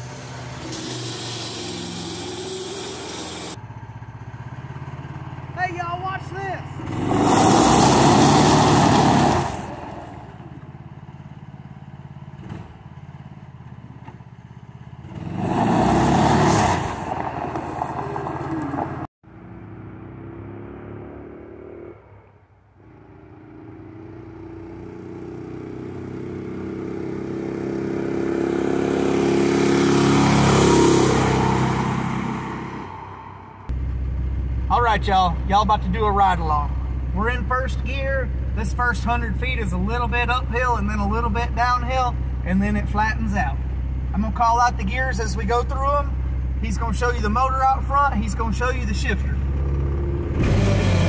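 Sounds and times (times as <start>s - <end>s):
small engine running: 0.0s - 5.4s
truck driving over gravel: 7.0s - 10.8s, 12.6s - 19.1s.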